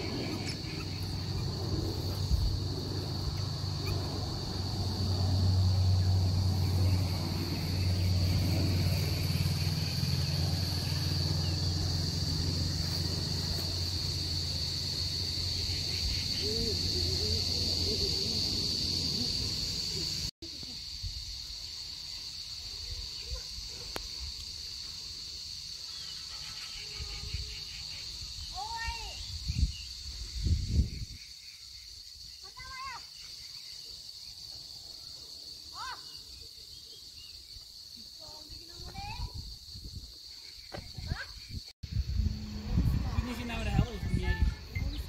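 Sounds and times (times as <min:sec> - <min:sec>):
high-pitched insect drone: 0:00.0 - 0:45.0
low rumble: 0:41.9 - 0:44.2.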